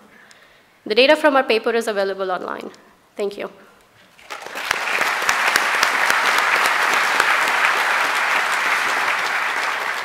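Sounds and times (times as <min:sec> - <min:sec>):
large audience applauding: 0:04.2 - 0:10.0.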